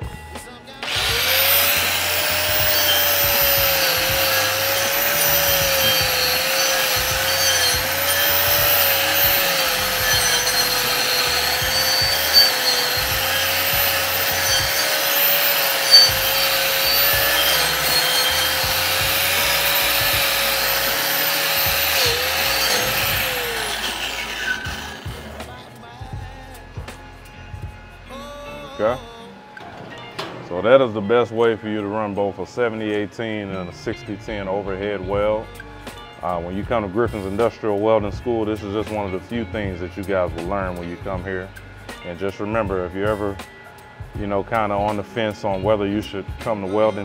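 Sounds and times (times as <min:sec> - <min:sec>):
wire wheel scraping metal: 0:00.8 - 0:25.7
angle grinder wire wheel whining: 0:00.8 - 0:25.8.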